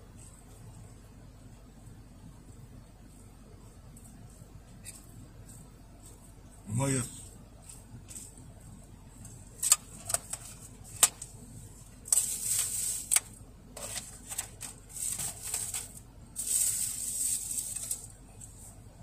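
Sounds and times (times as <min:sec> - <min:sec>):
plastic crinkling and rustling: 0:12.1 - 0:18.2.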